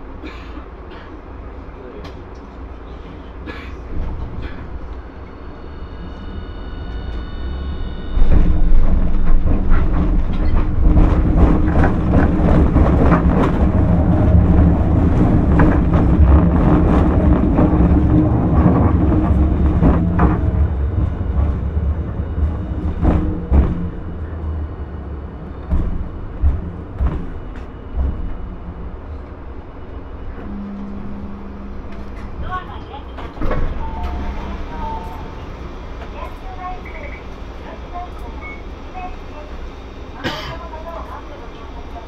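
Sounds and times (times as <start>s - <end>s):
tram motor hum: 0.0s - 42.0s
tram wheels rumbling: 0.0s - 42.0s
wheels clacking over rail joints: 8.2s - 24.6s.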